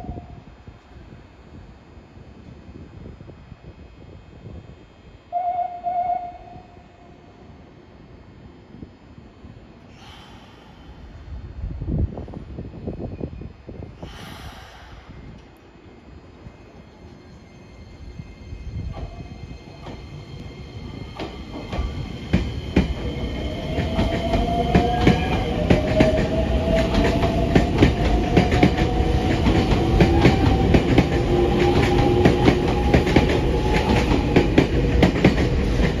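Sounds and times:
electric train motor whine: 0:00.0 - 0:36.0
train wheels clacking on rails: 0:18.8 - 0:36.0.

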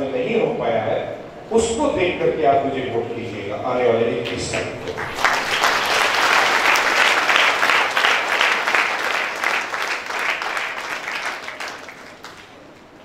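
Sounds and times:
audience applauding: 0:04.3 - 0:13.0.

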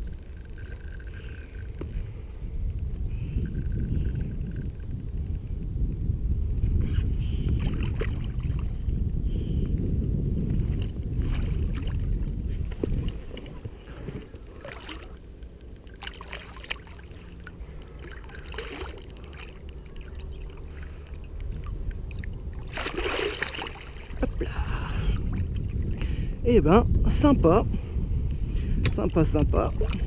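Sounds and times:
fish splashing water: 0:22.6 - 0:24.2.

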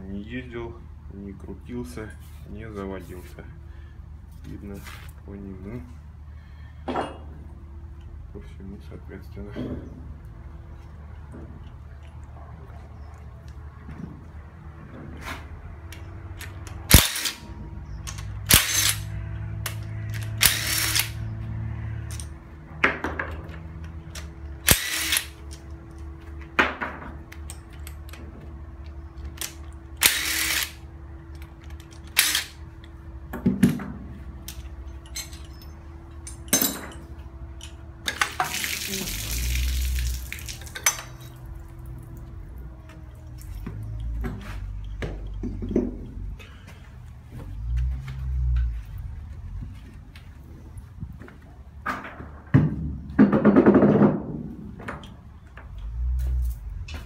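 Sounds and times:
impact wrench spinning bolts: 0:18.2 - 0:19.1, 0:24.6 - 0:25.4, 0:30.0 - 0:30.8.

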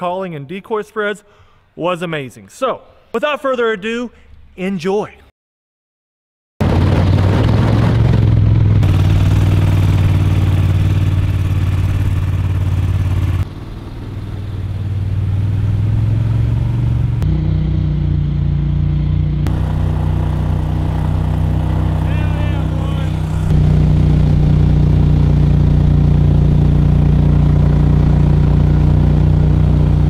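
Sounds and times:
boat motor running: 0:07.1 - 0:30.0.

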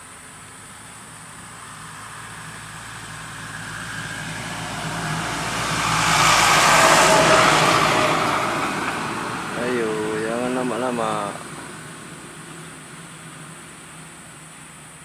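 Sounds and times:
motor vehicle passing by: 0:01.1 - 0:14.5.

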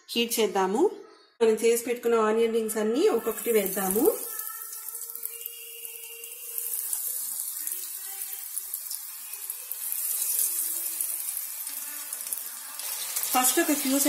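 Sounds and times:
onion rings sizzling in oil: 0:03.1 - 0:14.0.

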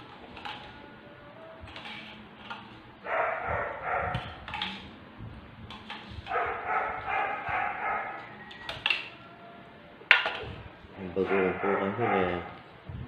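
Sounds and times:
dog barking: 0:03.1 - 0:04.4, 0:06.3 - 0:08.2, 0:11.2 - 0:12.6.

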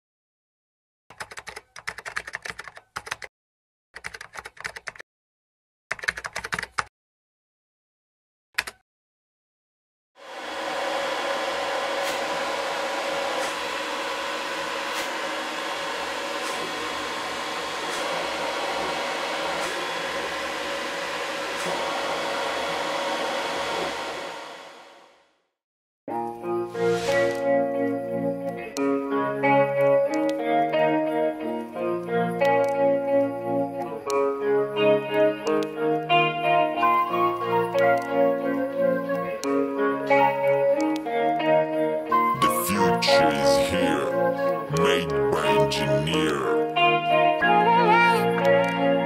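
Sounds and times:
three d printer fans whirring: 0:10.4 - 0:24.7.

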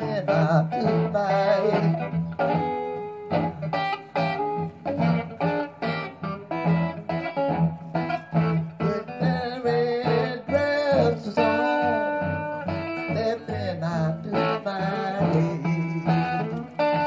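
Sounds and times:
person singing: 0:00.0 - 0:04.4, 0:08.4 - 0:17.0
blues guitar picking: 0:00.0 - 0:17.0.

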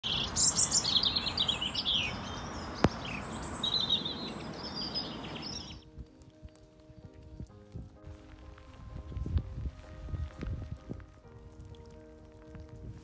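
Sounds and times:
wild birds singing and chirping: 0:00.0 - 0:05.9
steady outdoor noise: 0:00.0 - 0:13.0
soft music with held notes: 0:04.3 - 0:13.0.

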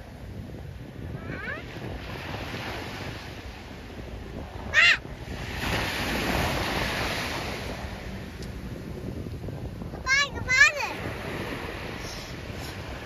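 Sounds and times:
surf washing on shore: 0:00.0 - 0:13.0
wave breaking: 0:01.2 - 0:08.4
gull calling: 0:04.7 - 0:05.0.

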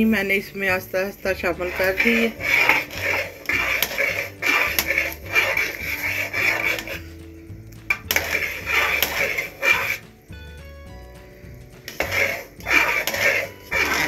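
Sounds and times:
metal spoon scraping a pot: 0:01.3 - 0:10.2, 0:11.8 - 0:14.0.

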